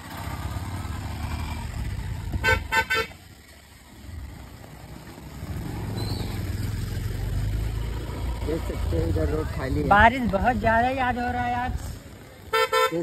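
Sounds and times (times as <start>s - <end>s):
motorcycle engine running: 0.0s - 13.0s
vehicle horn beeps: 2.4s - 3.2s, 12.5s - 13.0s.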